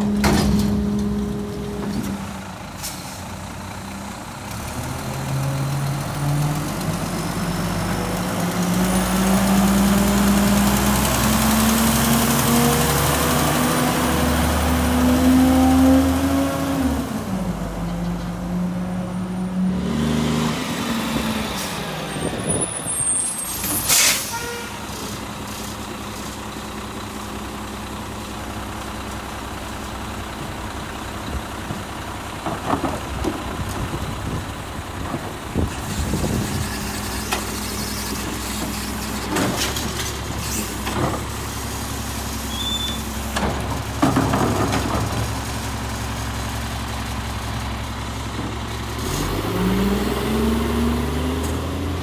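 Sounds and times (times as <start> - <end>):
diesel engine revving: 0.0 - 52.0
air brakes hiss: 23.7 - 25.1.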